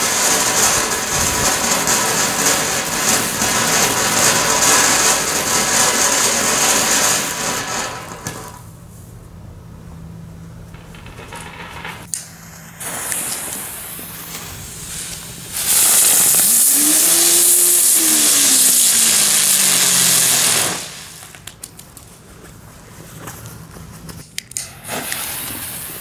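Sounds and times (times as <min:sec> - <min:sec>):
hiss of spraying sparks: 0:00.0 - 0:08.7, 0:12.1 - 0:21.6, 0:24.6 - 0:26.0
firework fuse fizzing: 0:00.0 - 0:08.8, 0:10.8 - 0:21.9, 0:24.4 - 0:26.0.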